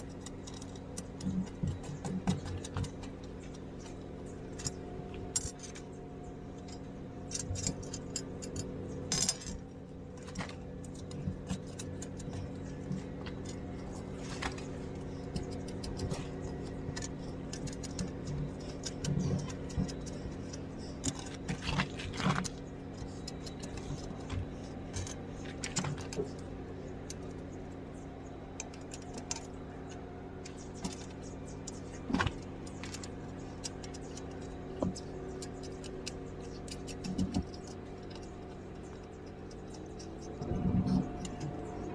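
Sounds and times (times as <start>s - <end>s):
steady hum: 0.0s - 41.9s
steel parts clinking: 6.6s - 12.6s.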